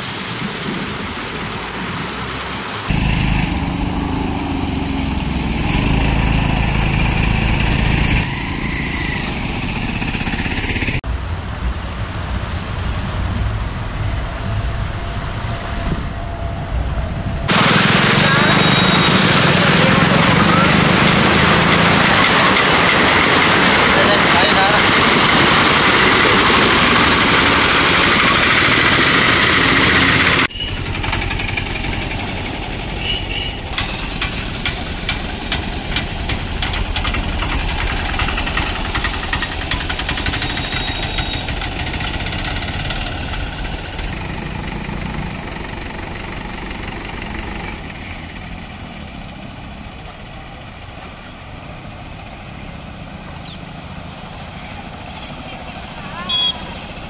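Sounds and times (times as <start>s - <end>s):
rickshaw engine puttering: 0.0s - 11.0s, 16.2s - 57.0s
water splashing: 0.0s - 11.0s, 17.5s - 49.2s
auto-rickshaw engines running: 0.0s - 57.0s.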